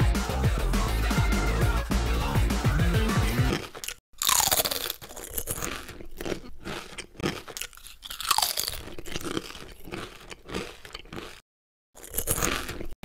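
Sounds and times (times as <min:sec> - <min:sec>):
crunching popcorn: 0:03.5 - 0:11.4, 0:12.0 - 0:13.0.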